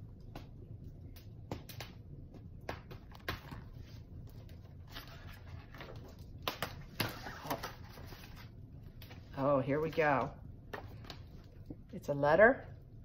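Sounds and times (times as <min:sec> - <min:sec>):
paper rustling: 0:03.1 - 0:09.3.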